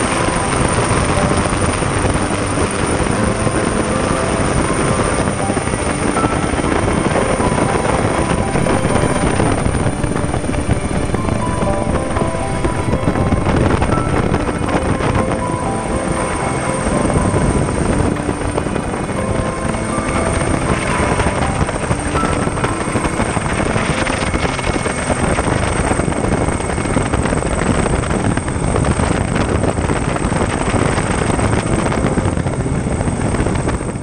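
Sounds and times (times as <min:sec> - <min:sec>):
helicopter engine and rotor: 0:00.0 - 0:34.0
thin high whine: 0:00.0 - 0:34.0.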